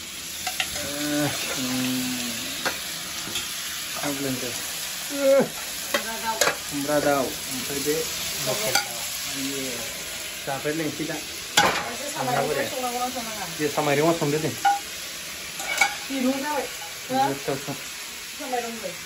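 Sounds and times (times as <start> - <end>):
meat sizzling in hot oil: 0.0 - 19.0
metal spatula scraping pan: 15.6 - 16.0.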